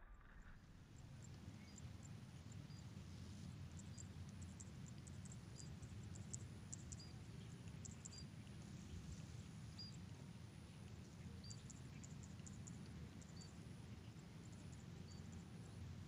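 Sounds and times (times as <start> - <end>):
low rumble: 0.0 - 0.7.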